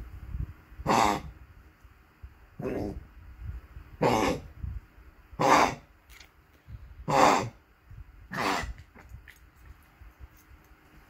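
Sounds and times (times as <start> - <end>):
small dog coughing: 8.3 - 8.9.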